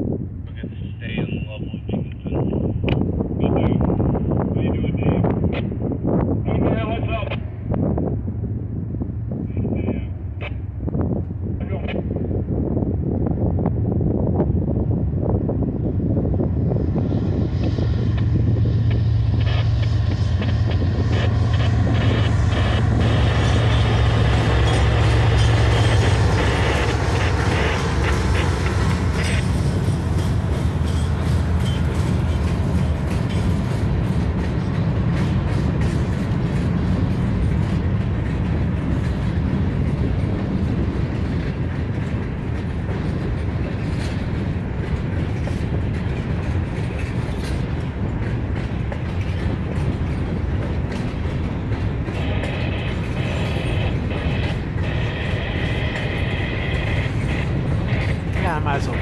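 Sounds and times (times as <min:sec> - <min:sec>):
locomotive engines rumbling: 0:00.0 - 0:59.0
train cars rolling on rails: 0:01.2 - 0:59.0
high-pitched whine: 0:17.4 - 0:29.8, 0:52.1 - 0:59.0.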